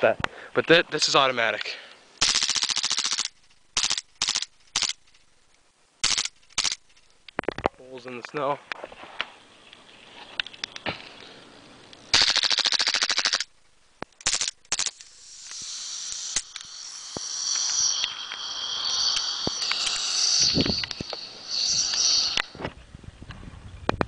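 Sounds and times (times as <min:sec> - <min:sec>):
airsoft pistol firing bursts: 0:02.2 - 0:05.0, 0:06.0 - 0:06.8, 0:12.1 - 0:13.5
gas hissing from gun: 0:14.2 - 0:22.6.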